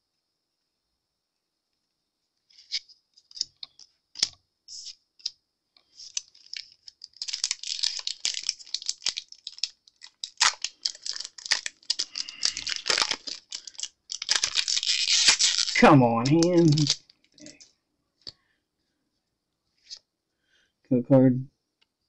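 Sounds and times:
foil wrapper crinkling and tearing: 5.9s - 17.7s.

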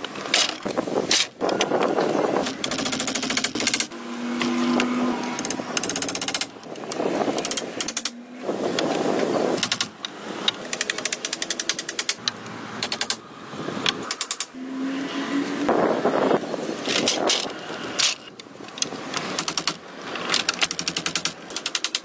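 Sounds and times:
rapid rattling clicks: 0.0s - 4.0s, 5.3s - 8.2s, 9.6s - 13.2s, 16.8s - 22.0s.

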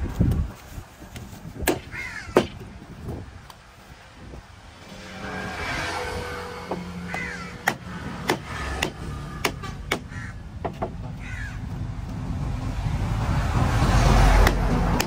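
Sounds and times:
machete chopping on wooden block: 1.6s - 2.6s, 7.1s - 11.0s
crows cawing: 1.9s - 2.6s, 6.8s - 7.9s, 9.9s - 10.5s, 11.2s - 11.7s.

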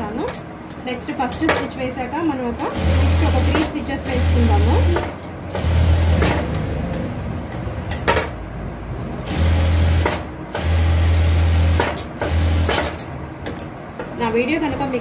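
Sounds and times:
sewing machine motor running: 2.7s - 6.5s, 9.2s - 12.9s.

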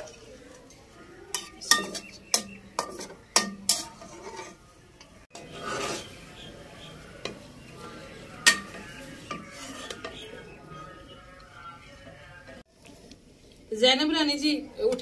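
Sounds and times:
metal spatula clinking on pan: 1.3s - 4.6s
spatula scraping pan: 1.3s - 10.9s.

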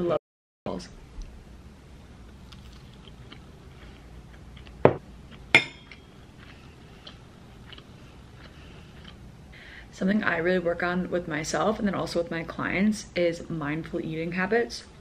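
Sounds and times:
cutlery clinking on a plate: 5.6s - 6.0s.

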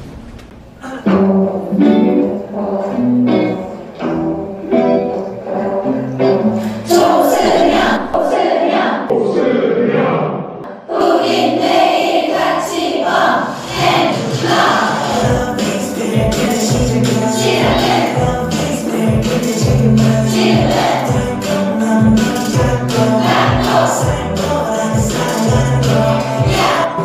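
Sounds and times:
music: 0.8s - 8.1s, 12.3s - 27.0s
man singing cheery song: 0.8s - 8.3s, 15.0s - 27.0s
chanted syllables: 0.8s - 21.8s.

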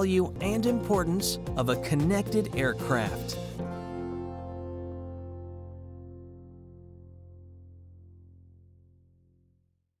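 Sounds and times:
low sustained music chord: 3.5s - 8.3s.

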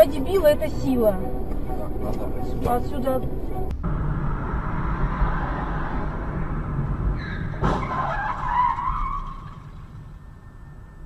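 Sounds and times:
car running noise: 0.0s - 11.0s
tyre squeal of skidding: 7.1s - 11.0s.

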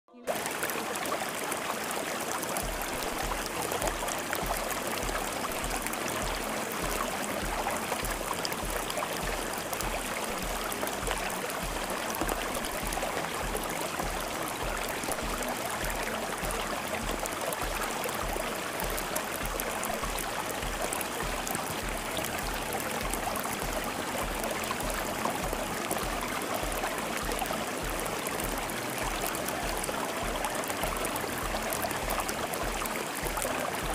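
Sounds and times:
running water: 0.1s - 33.9s
soft low regular pulse: 2.6s - 33.9s.

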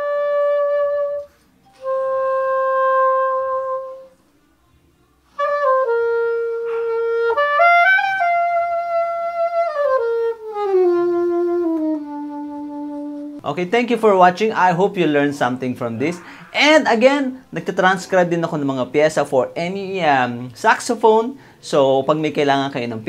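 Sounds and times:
soprano saxophone playing: 0.0s - 4.3s, 5.3s - 13.4s.

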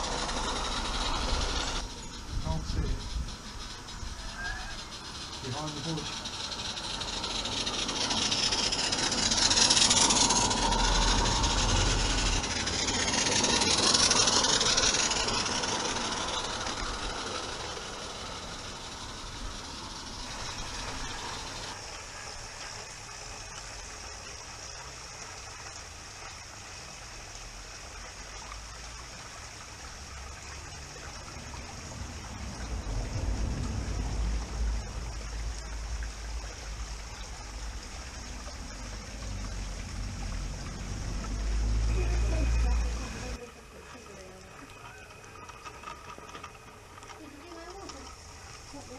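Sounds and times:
steam locomotive hissing steam: 0.0s - 23.4s.

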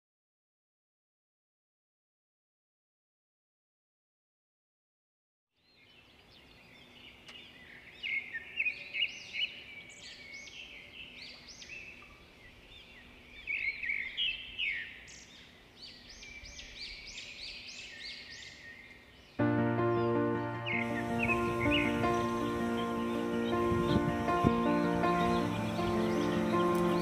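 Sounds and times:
small birds chirping: 5.6s - 27.0s
faint hiss: 18.5s - 27.0s.

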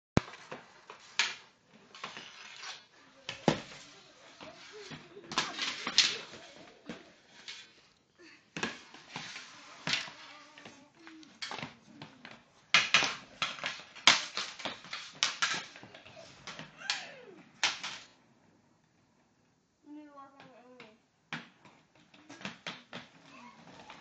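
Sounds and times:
hockey stick striking ball: 8.6s - 10.7s, 12.7s - 15.8s.

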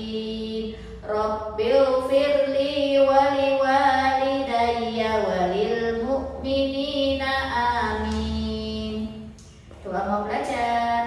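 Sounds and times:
woman chanting: 0.0s - 11.0s.

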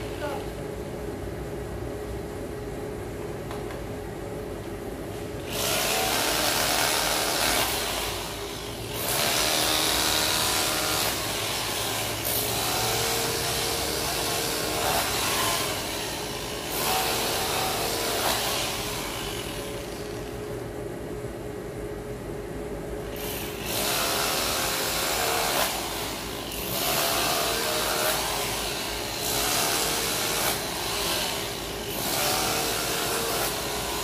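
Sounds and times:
power tool cutting road surface: 5.5s - 20.4s, 23.2s - 34.0s.

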